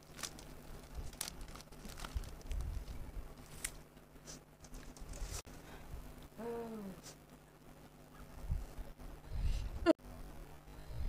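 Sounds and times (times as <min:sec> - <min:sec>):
dried seaweed crinkling: 0:00.0 - 0:03.8.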